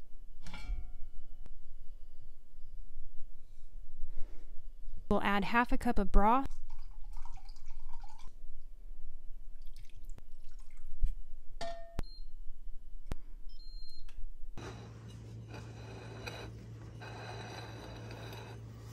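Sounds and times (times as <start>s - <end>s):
steady low hum: 12.4s - 18.9s.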